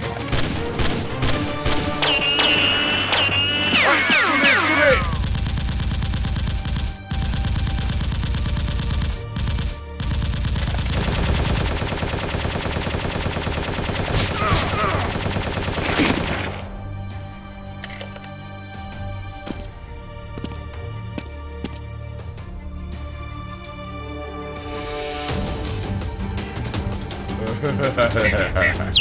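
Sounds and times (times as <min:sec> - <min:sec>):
background music: 0:00.0 - 0:29.0
automatic gunfire: 0:04.8 - 0:16.6.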